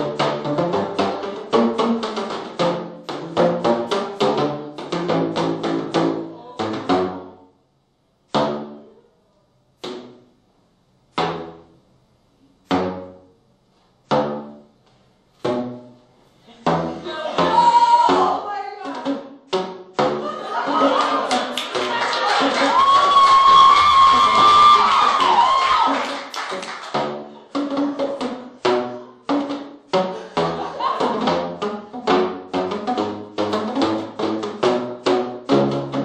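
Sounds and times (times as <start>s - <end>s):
tune on pitched drums: 0.0s - 7.3s, 8.3s - 8.9s, 11.1s - 11.8s, 12.6s - 13.3s, 14.0s - 14.8s, 15.4s - 16.0s, 16.6s - 18.4s, 19.0s - 20.4s, 26.9s - 36.0s.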